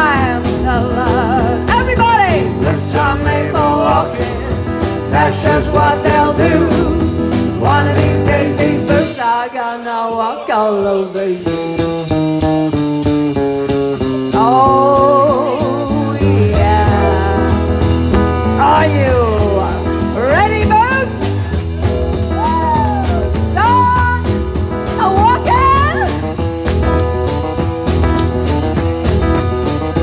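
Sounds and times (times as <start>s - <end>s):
woman singing into a microphone: 0.0s - 11.6s, 14.3s - 17.9s, 18.6s - 21.1s
live band with drums and guitar: 0.0s - 30.0s.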